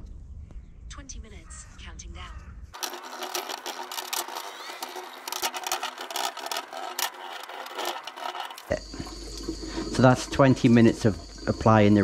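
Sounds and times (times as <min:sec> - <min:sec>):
paintbrush scratching on metal: 0:02.8 - 0:09.2.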